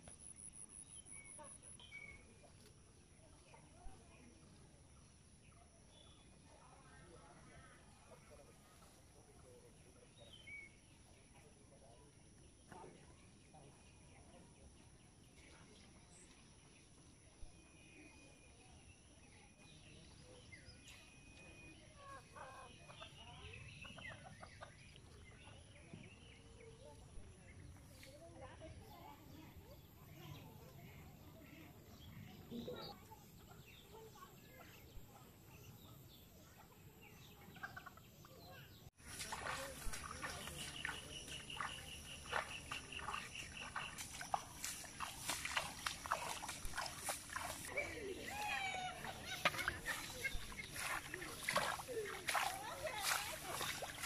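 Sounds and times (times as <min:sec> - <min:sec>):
distant bird chirps: 0:28.9 - 0:54.0.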